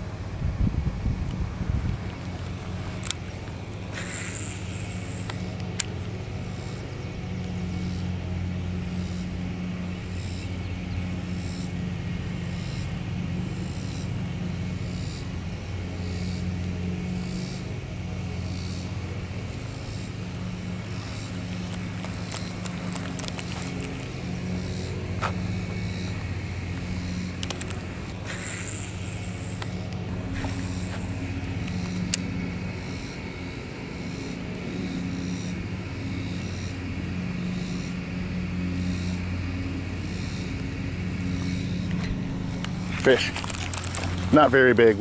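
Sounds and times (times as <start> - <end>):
low engine hum: 0.0 - 45.0
sharp clicks: 27.4 - 30.0.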